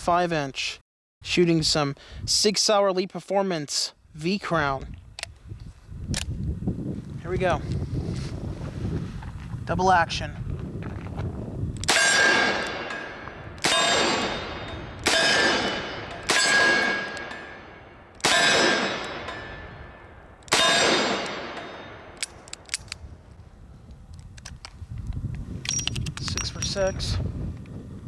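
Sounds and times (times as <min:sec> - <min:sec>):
steel targets ringing clang: 0:11.9 - 0:22.2.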